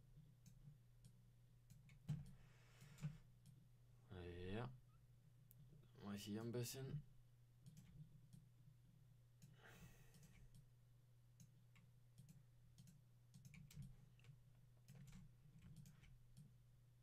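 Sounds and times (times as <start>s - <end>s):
computer mouse clicks: 0.4s - 3.6s, 11.4s - 16.5s.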